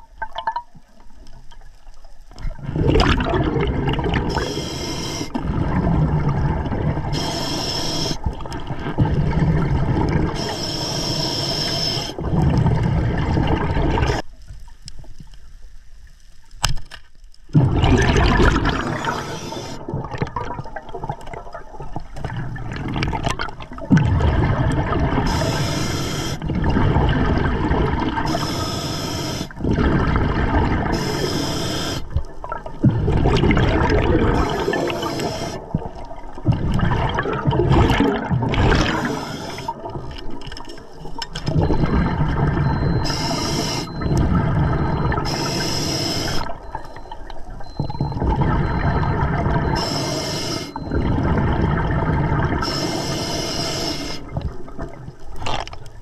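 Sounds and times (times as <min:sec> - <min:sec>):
bubbling exhalations: 0:02.4 - 0:14.2, 0:17.5 - 0:55.6
hissing regulator inhalations: 0:04.3 - 0:05.4, 0:07.1 - 0:08.3, 0:10.4 - 0:12.3, 0:18.8 - 0:19.8, 0:25.2 - 0:26.4, 0:28.2 - 0:29.6, 0:30.9 - 0:32.2, 0:34.3 - 0:35.8, 0:38.8 - 0:39.9, 0:42.7 - 0:46.6, 0:49.6 - 0:51.0, 0:52.6 - 0:54.3.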